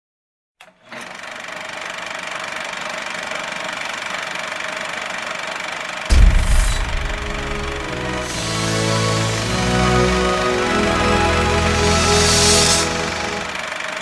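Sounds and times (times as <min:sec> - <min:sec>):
film projector whirring clatter: 0:00.6 - 0:06.1
loud deep boom: 0:06.1 - 0:08.7.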